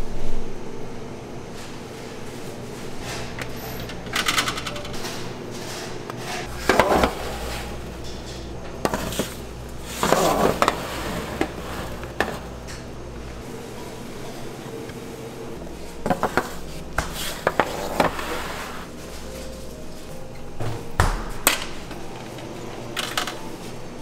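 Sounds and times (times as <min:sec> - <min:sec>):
steady machine hum: 0:00.0 - 0:24.0
metal pans clattering: 0:02.9 - 0:12.9.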